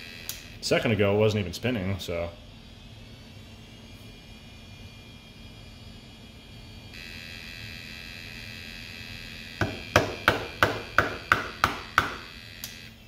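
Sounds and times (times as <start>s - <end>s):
hard drive high whine: 0.0s - 13.0s
hard drive sharp knocks: 9.6s - 12.2s.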